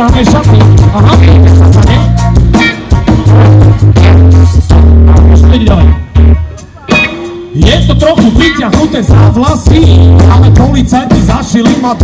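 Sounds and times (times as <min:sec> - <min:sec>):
rapped vocals: 0:00.0 - 0:02.2, 0:04.8 - 0:12.0
heavy bass line: 0:00.0 - 0:12.0
live band music: 0:00.0 - 0:12.0.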